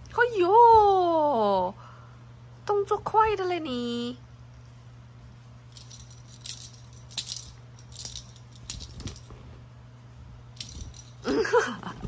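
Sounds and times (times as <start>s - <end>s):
low steady hum: 0.0s - 12.0s
cat toy jingling and rustling: 5.7s - 9.5s, 10.6s - 11.4s.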